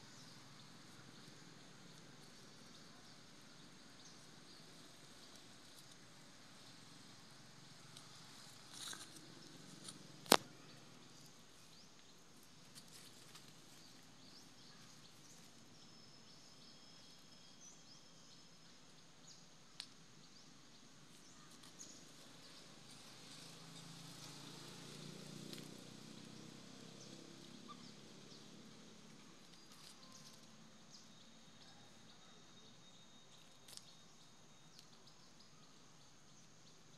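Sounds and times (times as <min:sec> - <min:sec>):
soft rustles: 0:11.6 - 0:14.2.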